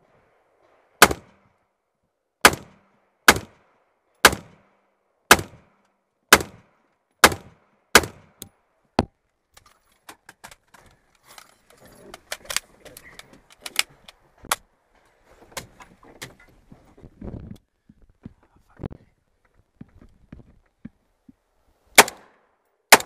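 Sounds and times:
rifle shots: 1.0 - 1.3, 2.4 - 3.6, 4.2 - 4.6, 5.3 - 5.7, 6.3 - 8.2, 22.0 - 23.0.

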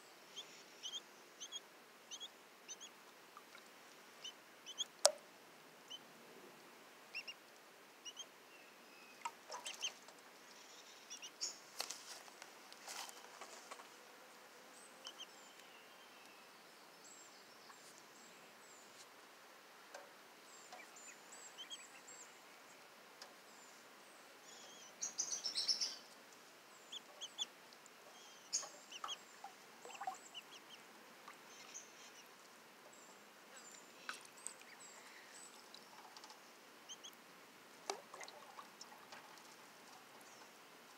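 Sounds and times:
ducklings peeping: 0.3 - 3.5, 4.2 - 5.2, 7.1 - 7.4, 8.0 - 8.3, 9.1 - 11.6, 15.0 - 15.3, 20.6 - 22.1, 26.8 - 32.3, 33.8 - 37.2
water splashing in plastic tub: 29.0 - 30.2, 37.8 - 40.1.

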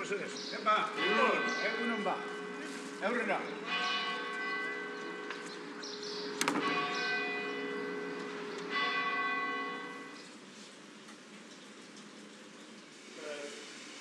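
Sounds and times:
church bell tolling: 0.0 - 10.3.

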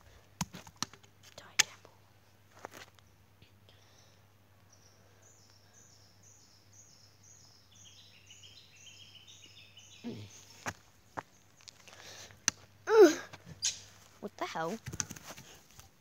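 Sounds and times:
descending bird calls: 3.0 - 14.1.

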